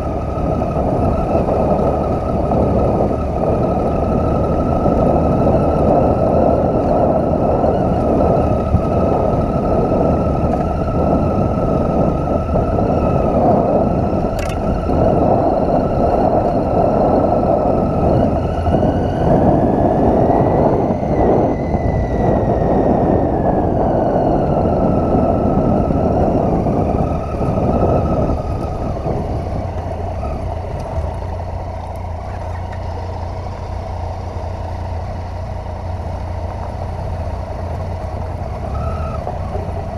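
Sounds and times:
motorcycle engine running: 0.0s - 39.9s
sharp click: 14.3s - 14.7s.

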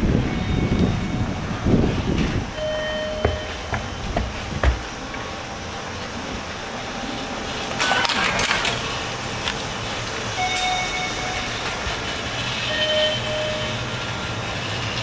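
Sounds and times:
steady background noise: 0.0s - 15.0s
short electronic beeps: 2.6s - 3.6s, 10.4s - 11.8s, 12.6s - 13.8s
knocks: 3.2s - 5.0s.

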